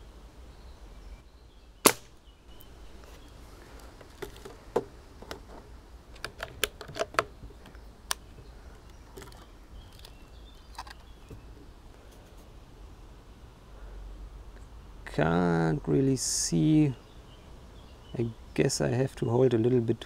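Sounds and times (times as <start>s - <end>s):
air rifle shot: 1.8s - 2.2s.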